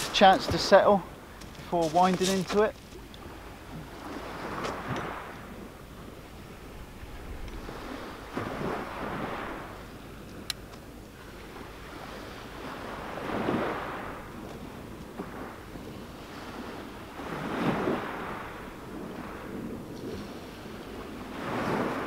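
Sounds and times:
waves washing up shingle: 0.0s - 6.4s, 7.0s - 22.0s.

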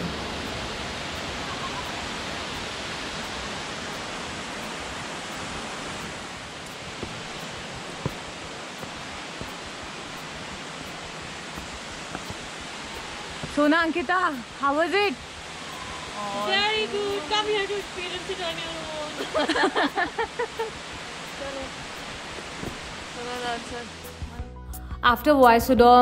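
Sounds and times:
waterfall rushing: 0.0s - 24.3s.

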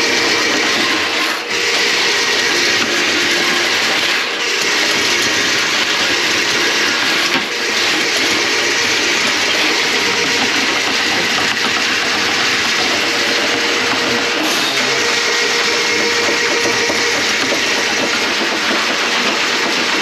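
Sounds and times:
drain-cleaning machine running: 0.0s - 20.0s.

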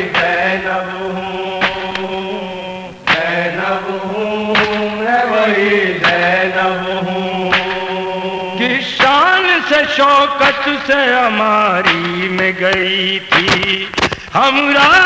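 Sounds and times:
voices chanting a long note: 0.0s - 9.8s
sharp rhythmic beat: 0.0s - 15.0s.

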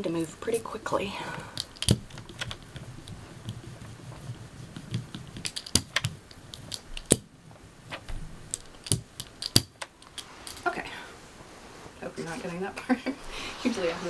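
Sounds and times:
rubber brayer rolling over paper: 2.0s - 5.5s.

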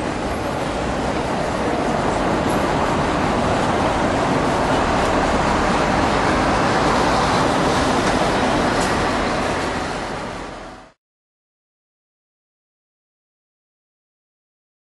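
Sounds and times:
city street traffic: 0.0s - 11.0s.

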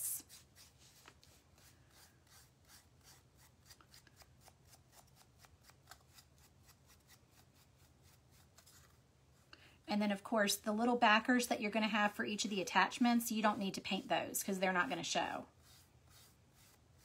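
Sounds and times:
paintbrush strokes on wood: 0.0s - 4.3s, 11.7s - 17.0s.

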